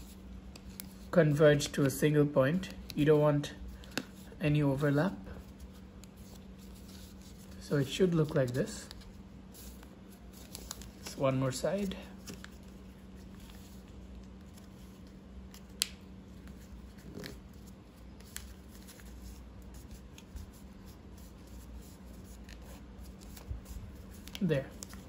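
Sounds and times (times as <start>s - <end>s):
paper rustling and creasing: 3.8s - 25.0s.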